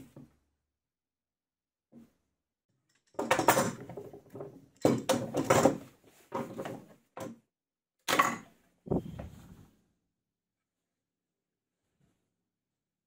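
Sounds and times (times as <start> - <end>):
clamps clattering on workbench: 3.1 - 7.3.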